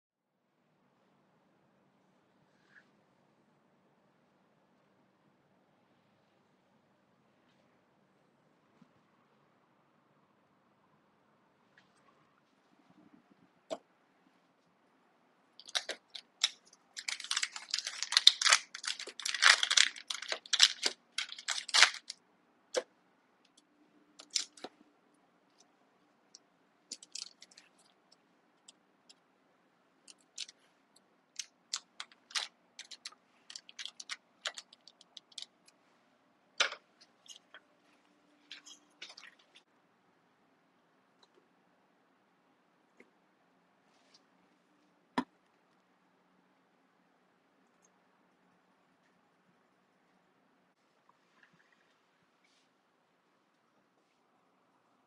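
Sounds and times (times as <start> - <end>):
paper wrapper crinkling: 15.6 - 22.2, 24.2 - 24.7, 26.9 - 27.9, 30.1 - 30.6, 31.3 - 35.7.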